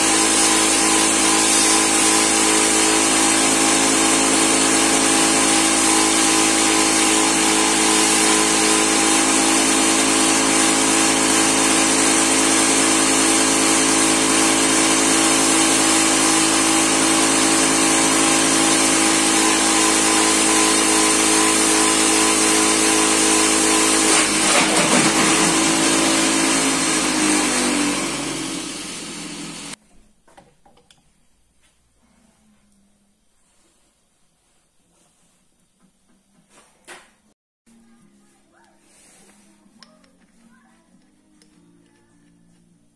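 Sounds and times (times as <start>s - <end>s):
machine humming and winding down: 0.0s - 29.8s.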